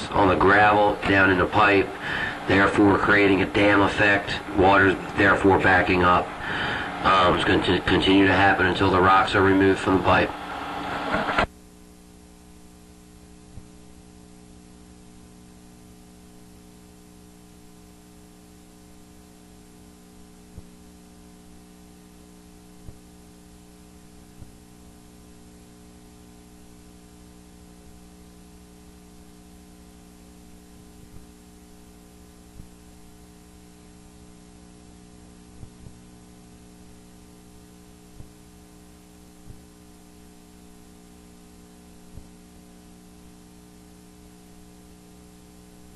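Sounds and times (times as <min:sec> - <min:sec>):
electrical mains hum: 0:00.0 - 0:45.9.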